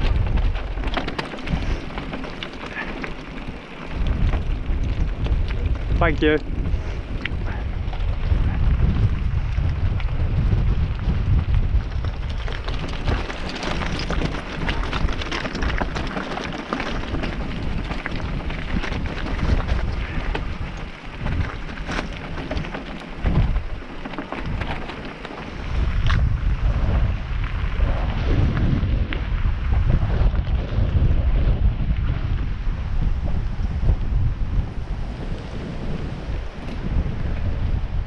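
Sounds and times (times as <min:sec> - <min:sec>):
bike clattering: 0:00.0 - 0:10.1, 0:11.4 - 0:26.5
tyres crunching on gravel: 0:00.0 - 0:28.0
wind rumble on microphone: 0:00.0 - 0:38.0.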